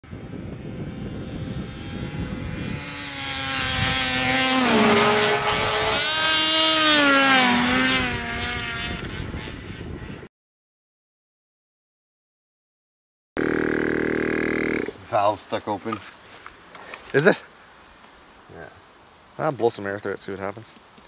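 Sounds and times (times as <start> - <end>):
race car engine revving: 0.5 - 9.6, 13.4 - 15.0.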